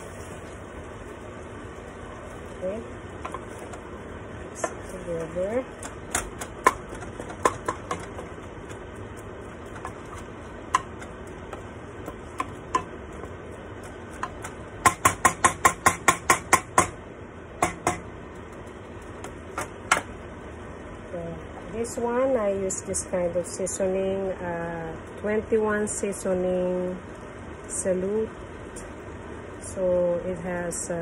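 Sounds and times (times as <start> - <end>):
spatula stirring meat in pot: 3.1 - 16.9
spatula knocking on pot: 4.6 - 8.9, 9.7 - 17.0, 17.6 - 18.1
sharp taps on pot: 5.8 - 8.8, 10.7 - 12.9, 13.8 - 17.0.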